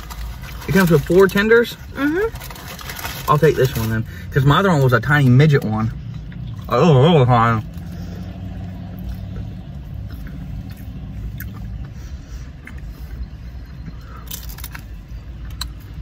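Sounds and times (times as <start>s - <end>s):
food packaging rustling: 0.0s - 4.1s
car idling: 0.0s - 16.0s
faint chewing: 7.6s - 16.0s.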